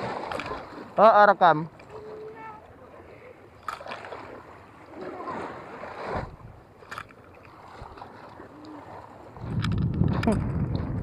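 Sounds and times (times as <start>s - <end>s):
small waves lapping on shore: 0.0s - 11.0s
fishing rod clicks: 9.5s - 10.5s.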